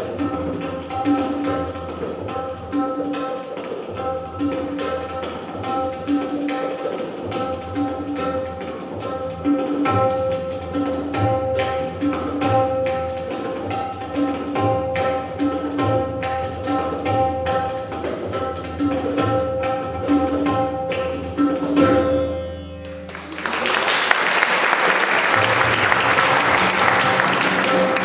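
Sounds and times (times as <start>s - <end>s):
tabla drums playing: 0.0s - 28.0s
audience applauding: 23.1s - 28.0s.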